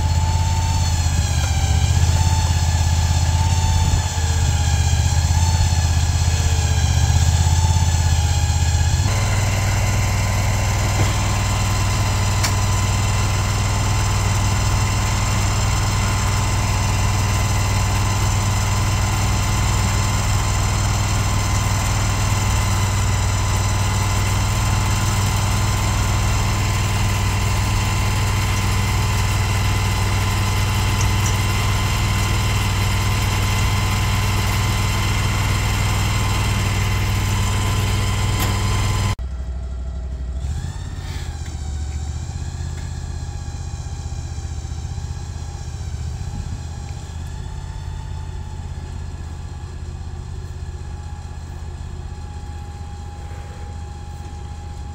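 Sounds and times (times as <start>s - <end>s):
engine idling: 0.0s - 54.9s.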